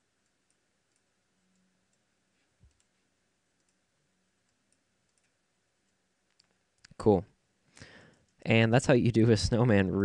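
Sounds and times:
computer mouse clicks: 0.2 - 3.0, 3.6 - 3.8, 4.4 - 7.0.

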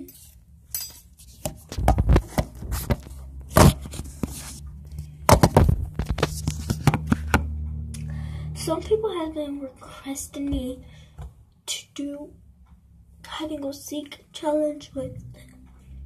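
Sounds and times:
steady low hum: 0.0 - 16.0
fingers handling phone: 5.3 - 7.4.

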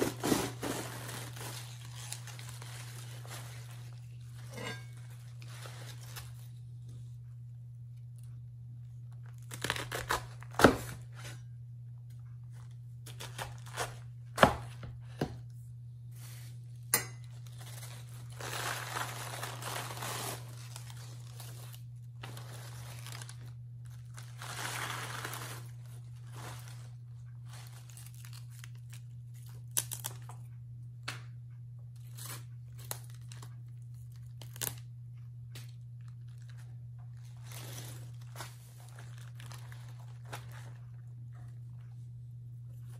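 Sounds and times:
cabbage leaves tearing: 0.0 - 6.6, 9.2 - 11.0, 13.0 - 14.0, 17.4 - 30.4, 34.2 - 34.9, 37.2 - 40.8
steady low hum: 0.0 - 42.9.

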